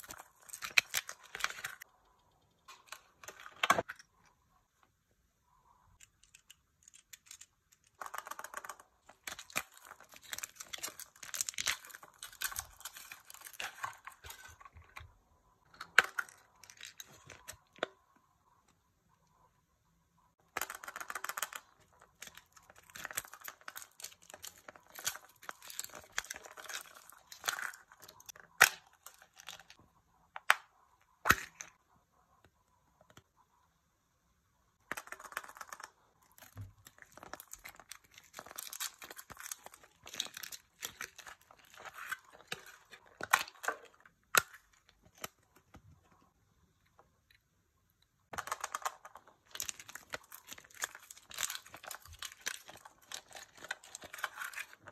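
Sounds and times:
plastic wrapping crinkling and tearing: 0.0 - 1.9, 9.0 - 15.0, 21.6 - 29.8, 36.4 - 45.5, 49.2 - 54.9.

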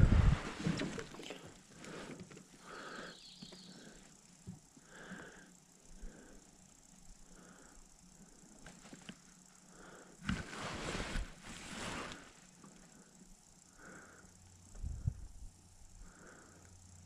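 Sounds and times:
breathy noise: 0.0 - 8.8.

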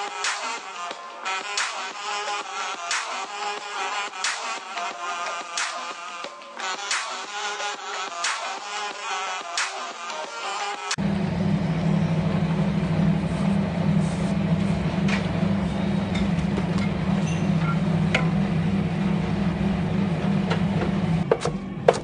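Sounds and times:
low machine hum: 11.0 - 22.0.

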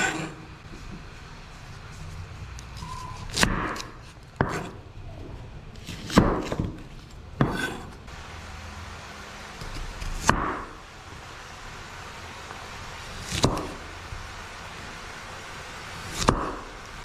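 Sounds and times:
knife cutting onion on board: 2.6 - 4.9, 5.8 - 8.0, 9.6 - 10.8, 13.1 - 13.9, 16.0 - 16.9.

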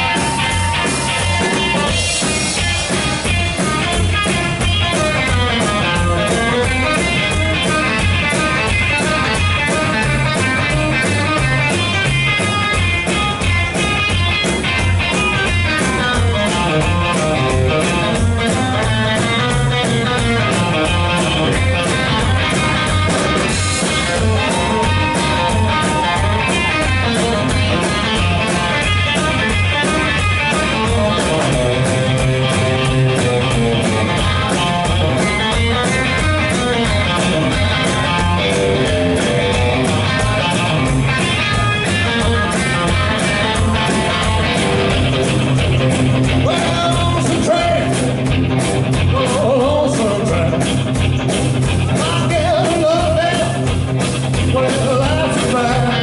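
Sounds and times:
drum kit beat: 0.0 - 56.0
electric guitar lead: 0.0 - 56.0.

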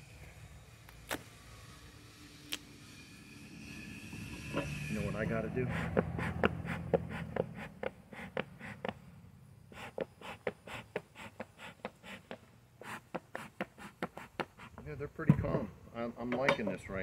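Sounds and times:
bellows puffing air: 4.5 - 9.1, 9.7 - 14.8.

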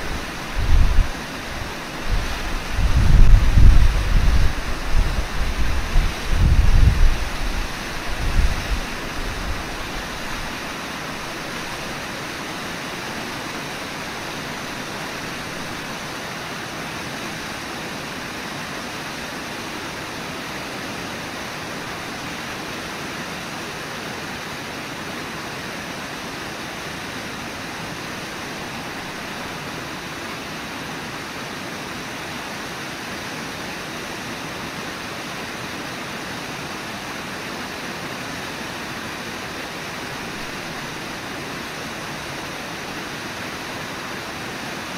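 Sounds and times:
wind buffeting microphone: 0.0 - 10.5
river and waterfall rushing: 0.0 - 44.9.

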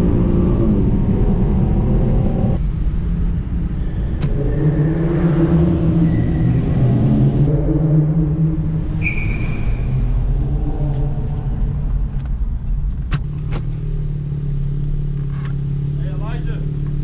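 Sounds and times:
car engine running: 0.0 - 17.0
short high squeal: 8.9 - 10.2.

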